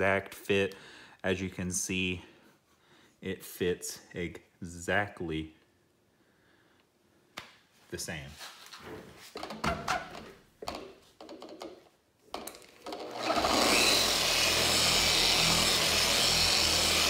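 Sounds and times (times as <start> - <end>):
car polisher running: 13.0 - 17.0.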